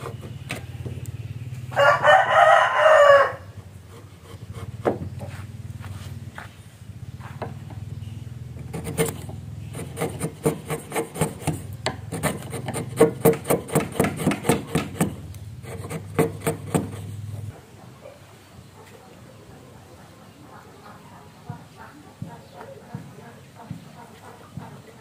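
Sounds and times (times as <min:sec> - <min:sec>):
chisel scraping wood: 0:00.0 - 0:01.0, 0:03.8 - 0:05.4, 0:08.5 - 0:17.5.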